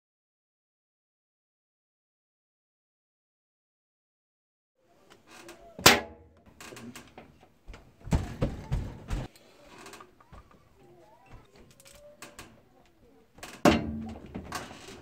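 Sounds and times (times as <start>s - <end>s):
knocks and thumps: 7.1s - 9.3s, 13.5s - 14.8s.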